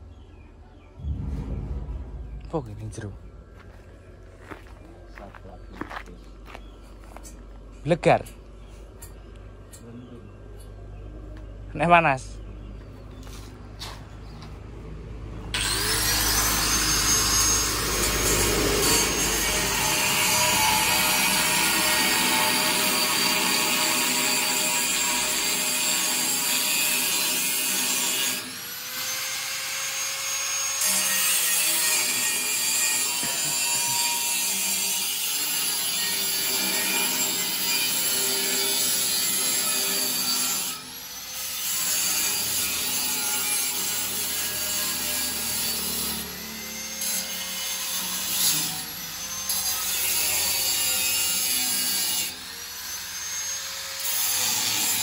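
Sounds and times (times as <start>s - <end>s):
angle grinder cutting steel pipe: 15.6s - 55.0s.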